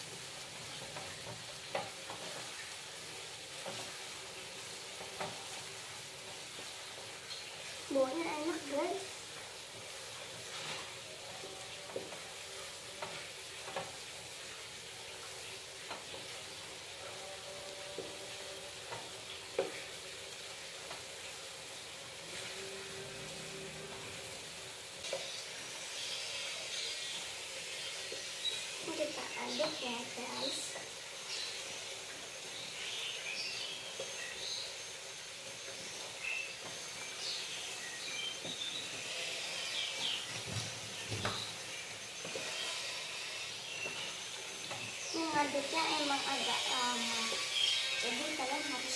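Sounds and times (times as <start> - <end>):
food sizzling in a frying pan: 0.0 - 48.9
gas burner hissing: 0.0 - 48.9
spatula scraping pan squeaky: 41.4 - 48.9.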